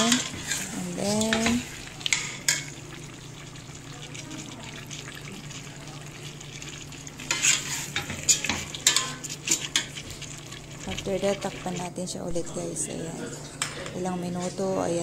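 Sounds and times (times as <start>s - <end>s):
ladle scraping and clinking pot: 0.0s - 2.7s, 7.2s - 11.8s.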